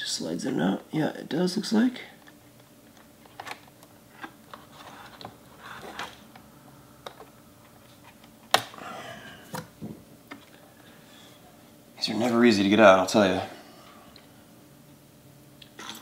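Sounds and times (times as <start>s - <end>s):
small clicks and scraping: 2.2s - 6.4s.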